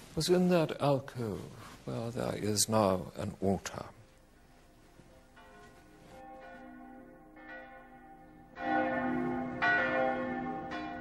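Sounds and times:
church bells chiming: 0:05.2 - 0:11.0.

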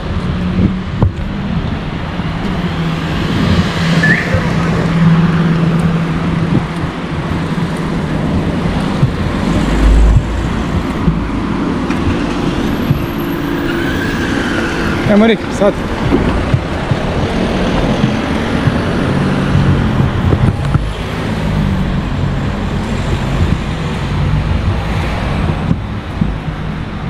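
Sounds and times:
cars driving past: 0:00.0 - 0:27.0
deep rumble: 0:00.0 - 0:27.0
steady engine hum: 0:00.0 - 0:27.0.

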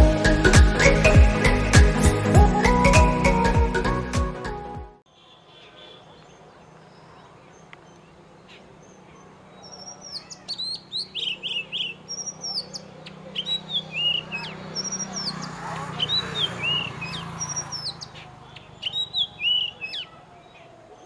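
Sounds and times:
bird singing whistled notes: 0:09.6 - 0:15.4, 0:16.0 - 0:20.1.

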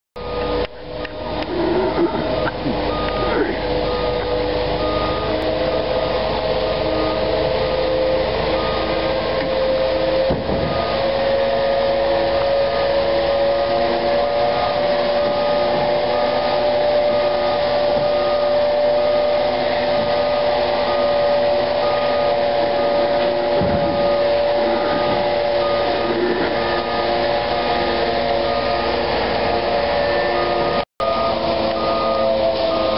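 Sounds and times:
reversing alarm beeping: 0:00.2 - 0:32.9
truck engine whine: 0:00.2 - 0:32.9.

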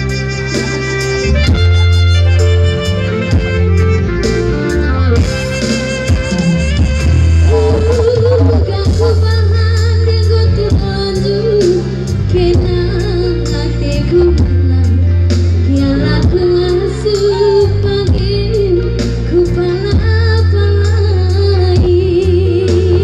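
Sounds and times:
heavy bass: 0:00.0 - 0:23.0
drum beat: 0:06.1 - 0:09.3
woman singing: 0:07.5 - 0:23.0.

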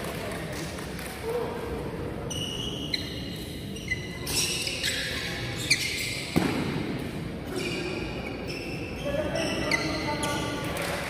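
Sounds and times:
shoes squeaking on court floor: 0:02.2 - 0:11.0.

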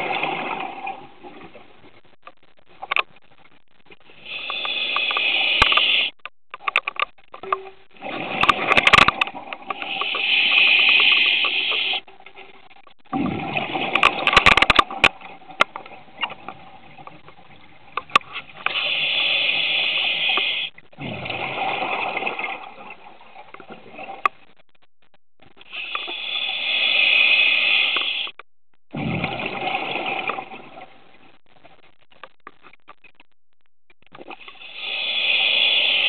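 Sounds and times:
exhaled bubbles underwater: 0:00.0 - 0:01.8, 0:08.0 - 0:12.0, 0:13.0 - 0:18.0, 0:18.8 - 0:24.4, 0:28.9 - 0:31.2
air hissing through scuba regulator: 0:04.2 - 0:06.1, 0:09.8 - 0:12.0, 0:18.7 - 0:20.7, 0:25.7 - 0:28.4, 0:34.4 - 0:36.0.

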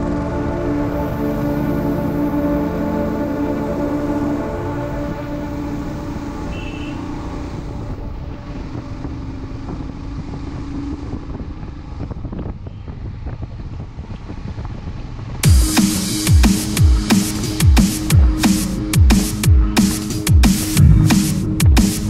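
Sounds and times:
vehicle engine hum: 0:00.0 - 0:16.2, 0:20.6 - 0:22.0
wind noise on microphone: 0:07.7 - 0:15.4.

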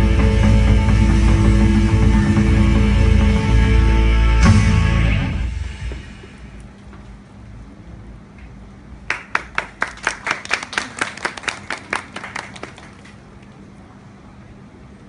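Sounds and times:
hand clapping: 0:09.1 - 0:13.2.

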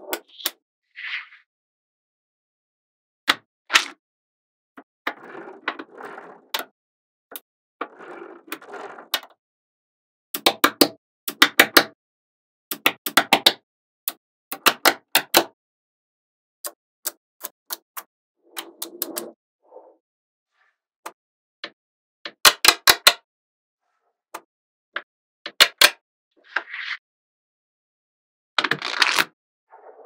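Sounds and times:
balls rattling and rolling: 0:05.0 - 0:06.7, 0:07.3 - 0:09.3.

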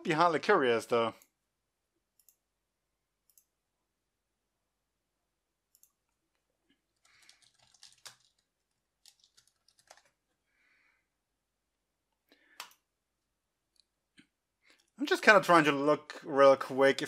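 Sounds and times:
faint keyboard typing: 0:05.7 - 0:10.4, 0:12.2 - 0:12.9.

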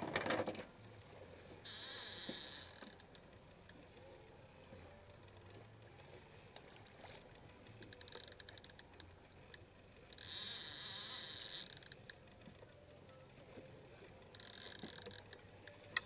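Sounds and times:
fishing reel drag buzzing: 0:01.6 - 0:03.2, 0:07.8 - 0:08.9, 0:10.1 - 0:12.2, 0:14.3 - 0:15.4
fishing reel clicking: 0:01.7 - 0:03.8, 0:07.7 - 0:12.2, 0:14.3 - 0:16.0.

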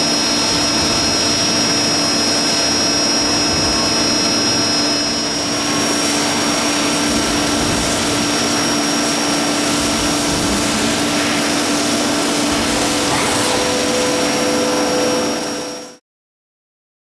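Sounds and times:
lathe whirring with whine: 0:00.0 - 0:16.0.

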